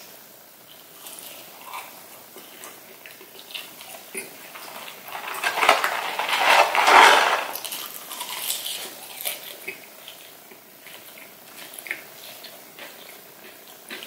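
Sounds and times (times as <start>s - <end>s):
chewing: 0.7s - 5.4s, 7.5s - 14.0s
paper carton rustling: 4.5s - 7.7s.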